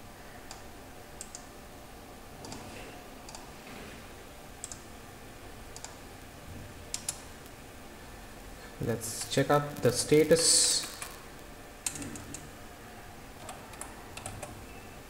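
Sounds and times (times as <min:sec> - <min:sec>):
faint steady hiss: 0:05.8 - 0:13.2
mouse and keyboard clicks: 0:06.9 - 0:07.2.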